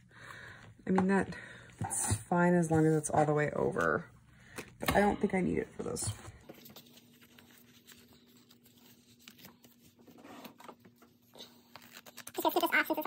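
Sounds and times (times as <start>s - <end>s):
paper rustling and scraping: 5.9s - 12.5s.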